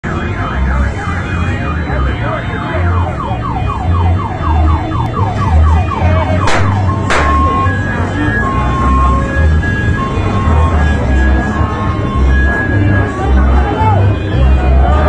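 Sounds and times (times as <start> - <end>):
electronic siren sweeping: 0.2 - 15.0
low bass beat: 3.9 - 15.0.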